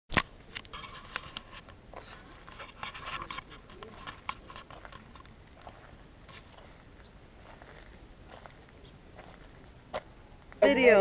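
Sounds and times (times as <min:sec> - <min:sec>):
camera handling scraping and rubbing: 0:00.1 - 0:06.8.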